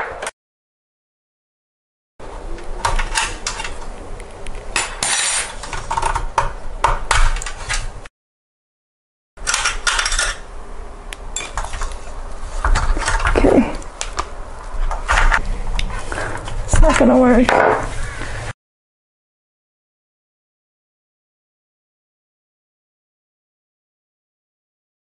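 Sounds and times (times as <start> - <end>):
thin metal parts clinking: 9.4 - 10.4.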